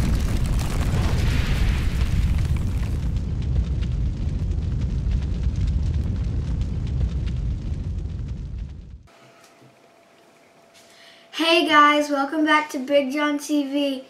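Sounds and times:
deep rumble of eruption and fire: 0.0s - 9.1s
fine crackling embers: 0.0s - 9.1s.

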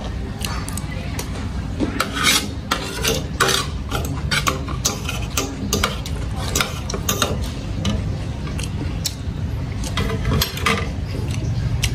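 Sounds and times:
cutlery scraping ceramic plate: 1.8s - 8.1s, 9.8s - 11.1s.

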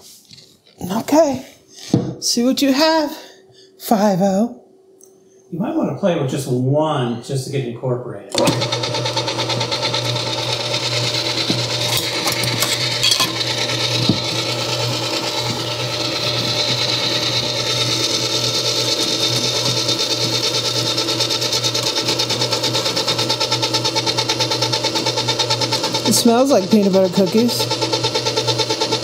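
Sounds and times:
stand mixer motor humming: 8.3s - 29.0s.

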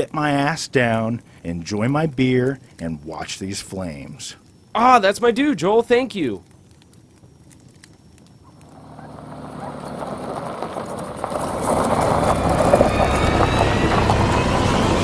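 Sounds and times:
faint campfire crackle: 0.0s - 15.0s
car driving past: 8.6s - 15.0s.

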